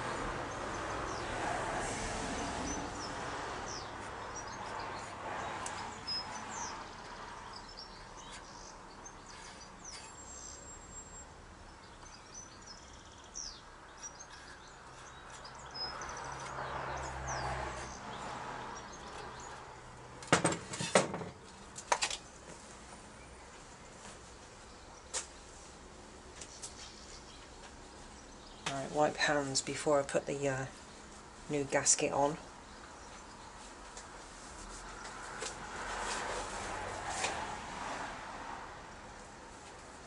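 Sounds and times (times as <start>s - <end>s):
small birds chirping: 2.4s - 20.2s, 21.4s - 34.2s.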